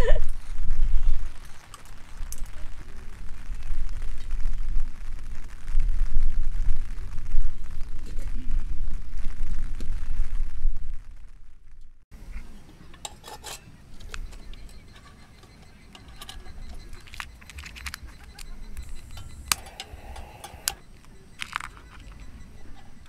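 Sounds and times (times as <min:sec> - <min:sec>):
metal lantern clinks and rattles: 0:12.9 - 0:20.8
sharp clicks: 0:14.0 - 0:22.5.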